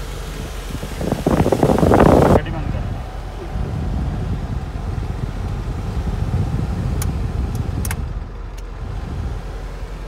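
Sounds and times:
diesel truck engine idling: 0:00.0 - 0:10.0
sharp clicks: 0:07.0 - 0:08.7.

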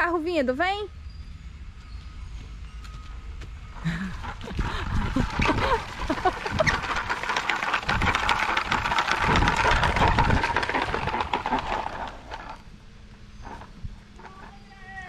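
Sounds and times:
wheels rolling over gravel: 0:03.7 - 0:15.0.

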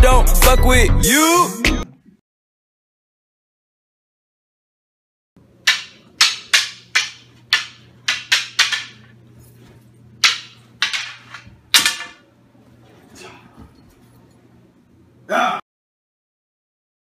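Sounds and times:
wooden sticks clacking: 0:05.6 - 0:12.2.

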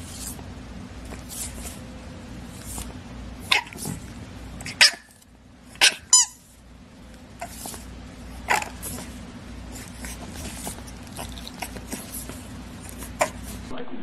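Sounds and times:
puppy squeaks and snorts: 0:05.8 - 0:06.4
puppies snuffly breathing: 0:07.4 - 0:13.7.

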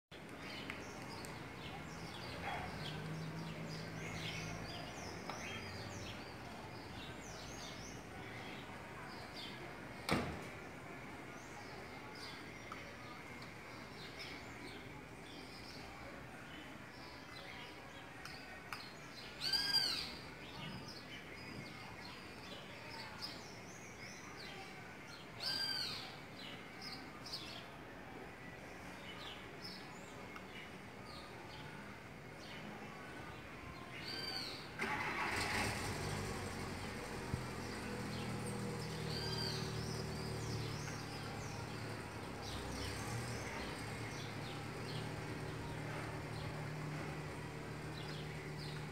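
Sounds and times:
small birds chirping: 0:00.1 - 0:10.1, 0:11.3 - 0:48.9
outdoor background hum: 0:00.1 - 0:48.9
birds calling: 0:17.0 - 0:21.9, 0:34.0 - 0:48.9.

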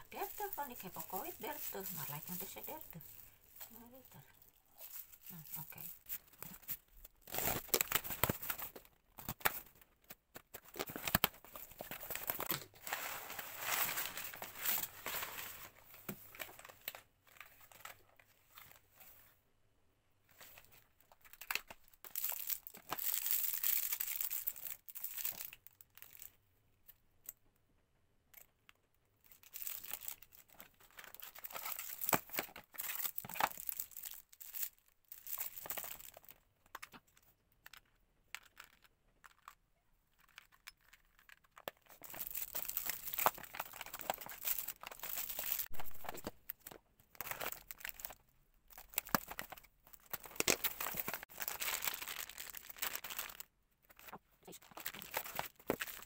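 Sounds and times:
packaging crinkling and tearing: 0:00.0 - 0:18.8, 0:20.4 - 0:26.4, 0:29.2 - 0:37.0, 0:37.6 - 0:56.0.

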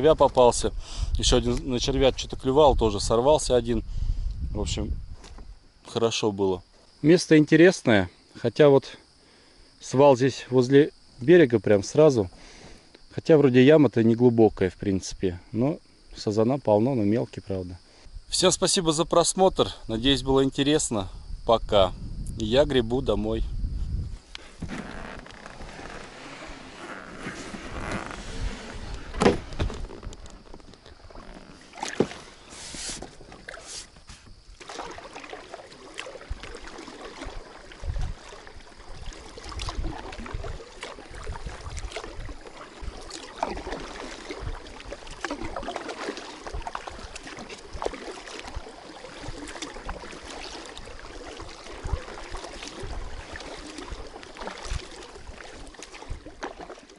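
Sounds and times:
bumps against kayak hull: 0:24.4 - 0:34.4
paddle strokes splashing: 0:24.4 - 0:56.9
sharp knocks on boat: 0:29.1 - 0:30.6.

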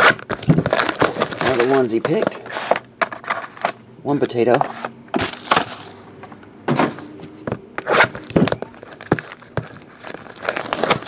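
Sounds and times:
hands handling card box: 0:00.0 - 0:11.0.

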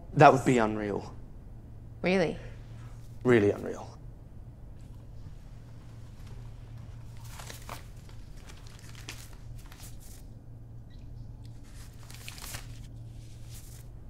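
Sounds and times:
low steady hum: 0:00.0 - 0:14.0
banknotes rustling: 0:05.6 - 0:10.4, 0:11.5 - 0:14.0.

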